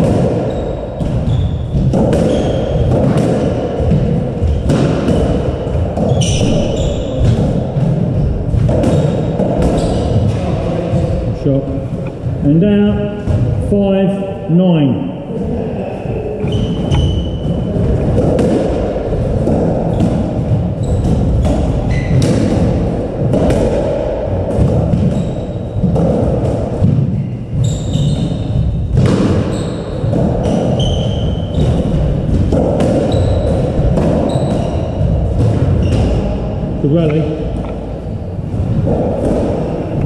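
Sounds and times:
squash ball cracking off rackets: 0.0 - 10.4, 16.5 - 25.2, 28.2 - 36.4
ball thudding against walls: 0.0 - 11.3, 16.4 - 36.4
shoes squeaking on wooden floor: 0.3 - 3.1, 3.8 - 10.4, 16.4 - 18.2, 19.8 - 22.4, 27.2 - 36.3.

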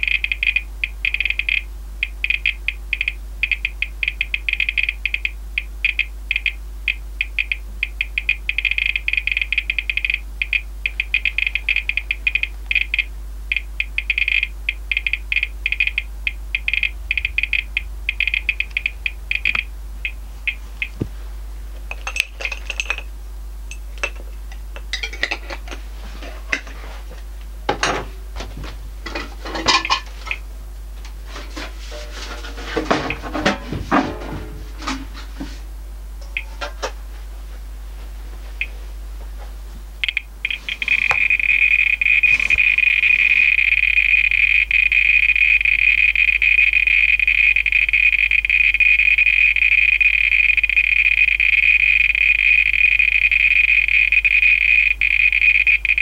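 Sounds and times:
geiger counter clicking: 0.0 - 21.1, 40.0 - 56.0
meter being handled and set down: 21.8 - 23.1, 23.7 - 30.4, 31.3 - 35.6.

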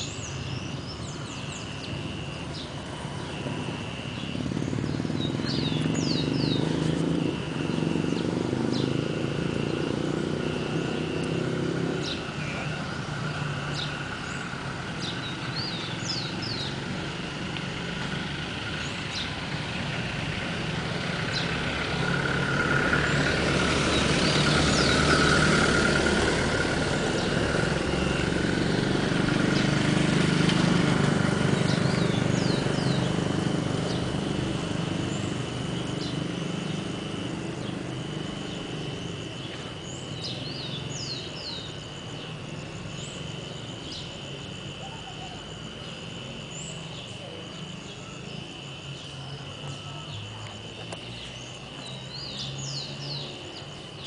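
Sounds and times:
bird chirps: 0.0 - 16.9
insect trill: 0.0 - 54.0
vehicle engine running: 0.0 - 54.0.

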